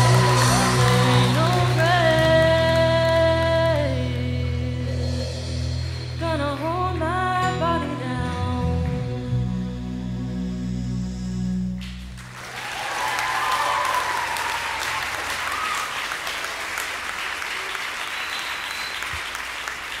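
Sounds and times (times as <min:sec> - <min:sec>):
audience cheering: 0:00.0 - 0:03.2, 0:12.2 - 0:20.0
audience applause: 0:00.0 - 0:03.3, 0:11.8 - 0:20.0.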